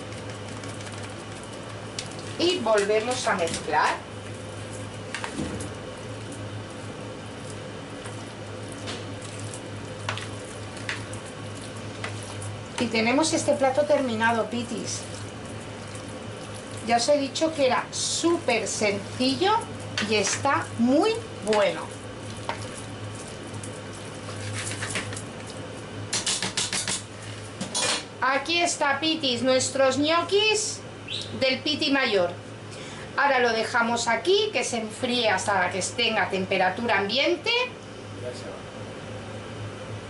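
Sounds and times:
spoon stirring wet salad: 0:06.2 - 0:17.6, 0:18.4 - 0:25.6.

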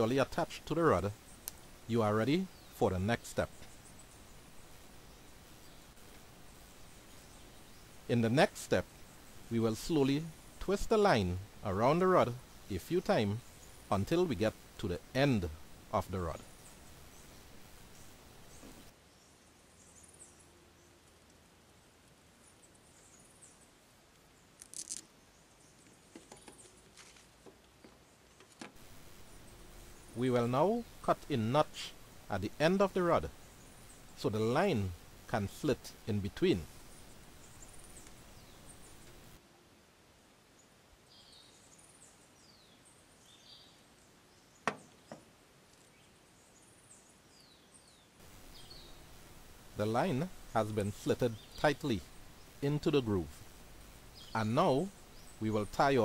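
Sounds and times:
faint birdsong chirps: 0:00.0 - 0:56.0.

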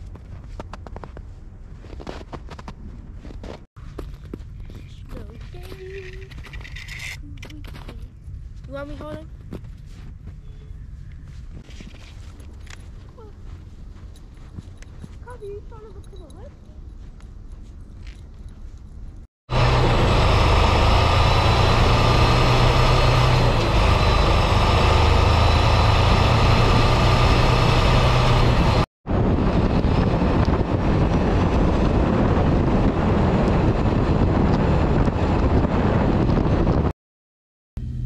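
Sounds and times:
road noise: 0:00.0 - 0:36.9, 0:37.8 - 0:38.0
truck engine drone: 0:19.5 - 0:36.9, 0:37.8 - 0:38.0.

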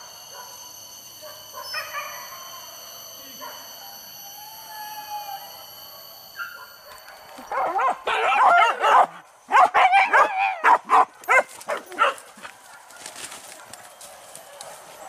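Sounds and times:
dog yelping and whining: 0:07.5 - 0:12.1.

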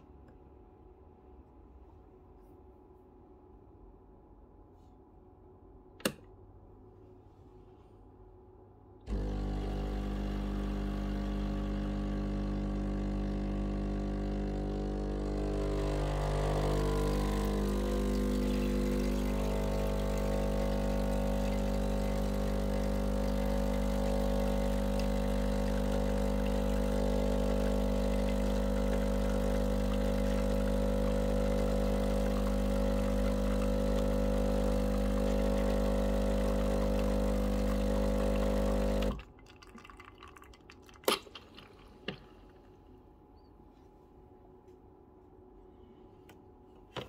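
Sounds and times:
espresso machine pump humming: 0:09.1 - 0:39.2.

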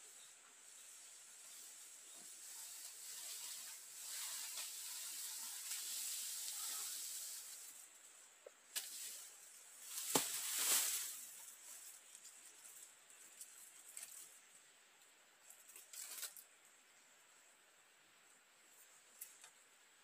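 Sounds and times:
leafy frond rustling: 0:00.0 - 0:16.7
footsteps crunching dry leaves: 0:08.8 - 0:14.2
twigs snapping: 0:09.9 - 0:11.2.

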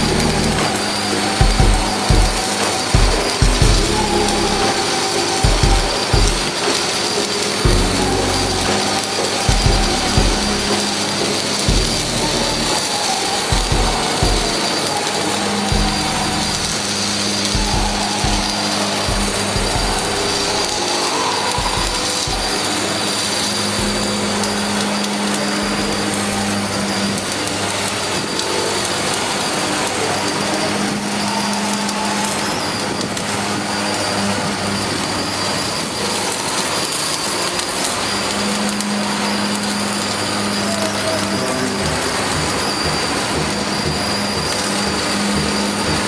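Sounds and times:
low hum: 0:00.0 - 0:04.8, 0:07.6 - 0:12.8, 0:15.6 - 0:20.9, 0:38.6 - 0:46.0
welding arc crackling hiss: 0:00.0 - 0:46.0.

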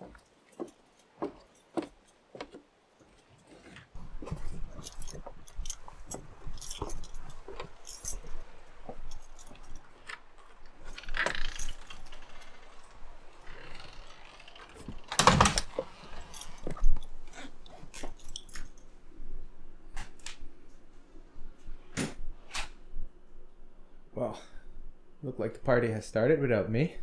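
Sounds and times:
footsteps on wooden deck: 0:00.0 - 0:11.7
jangling and clatter: 0:04.0 - 0:18.9.

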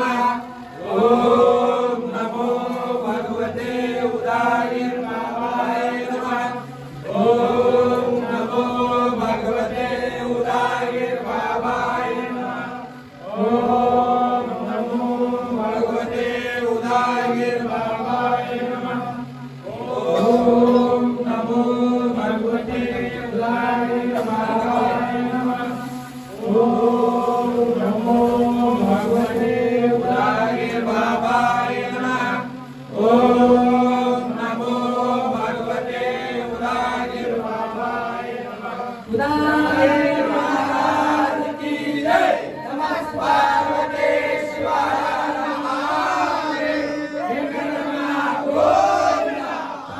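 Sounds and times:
man chanting into a microphone: 0:00.0 - 0:39.9.

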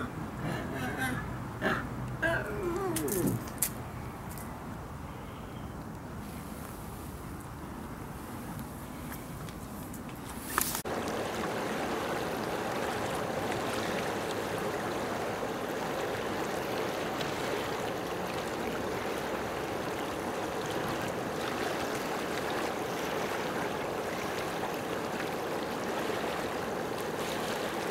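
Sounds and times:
rushing water: 0:10.6 - 0:27.9.

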